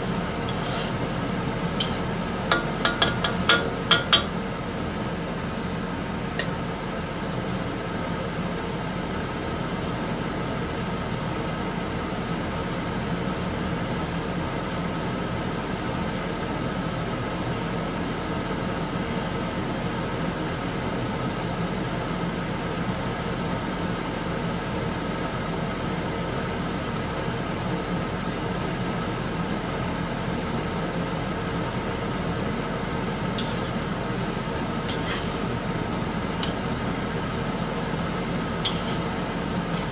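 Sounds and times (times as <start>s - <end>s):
kitchen hum and hiss: 0.0s - 39.9s
metal ladle clicking on wok: 1.8s - 4.3s, 36.4s - 36.7s, 38.7s - 39.0s.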